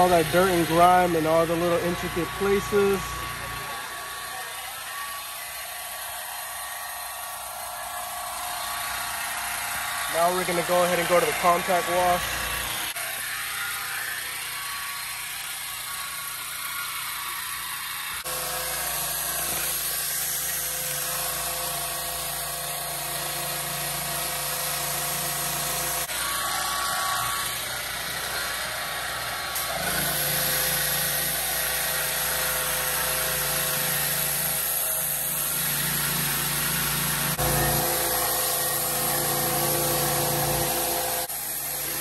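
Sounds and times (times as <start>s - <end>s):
pressure washer spraying water: 0.0s - 4.7s, 9.6s - 12.8s, 18.3s - 27.6s, 28.2s - 42.0s
motor hum: 0.0s - 42.0s.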